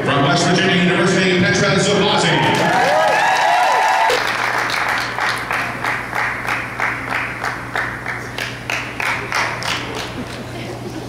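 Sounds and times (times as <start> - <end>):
crowd cheering: 2.0 - 7.6
audience clapping in rhythm: 2.5 - 10.5.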